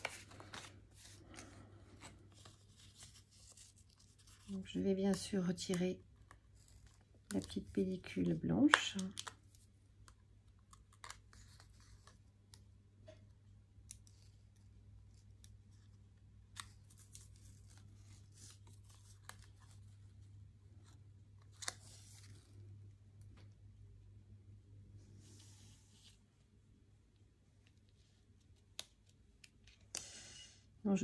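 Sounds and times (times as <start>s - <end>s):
paper handling: 0.0s - 5.4s.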